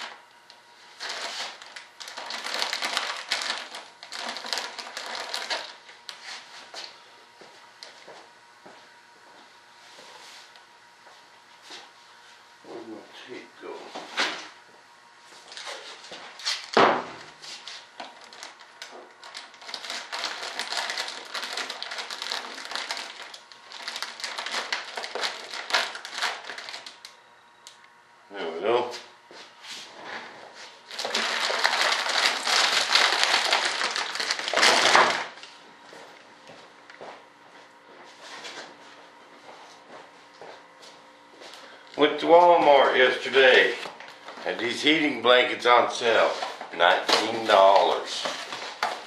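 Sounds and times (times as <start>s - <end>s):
plastic film crinkling: 0.0s - 6.4s, 17.4s - 27.2s, 30.8s - 35.5s, 46.2s - 49.0s.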